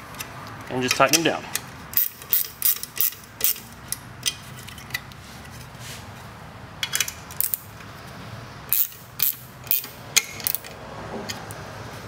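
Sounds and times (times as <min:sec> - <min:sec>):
ratchet clicking: 0:00.9 - 0:04.4, 0:06.8 - 0:07.8, 0:08.7 - 0:10.8.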